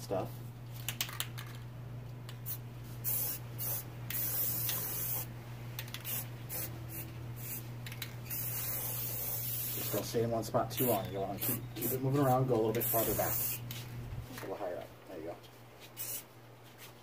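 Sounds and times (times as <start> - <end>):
spray paint can hissing: 2.4 - 10.1, 10.7 - 13.8, 15.9 - 16.3.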